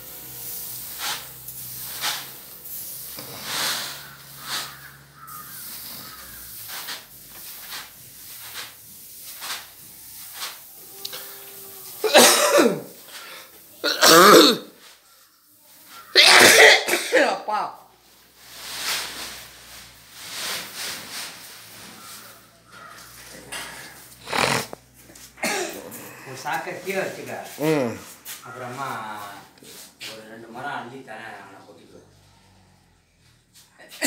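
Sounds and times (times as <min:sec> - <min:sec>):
person coughing hard: 0:12.0 - 0:13.0, 0:13.8 - 0:14.8, 0:16.2 - 0:17.6, 0:25.4 - 0:26.3
soft rustles and scuffs: 0:18.3 - 0:30.4.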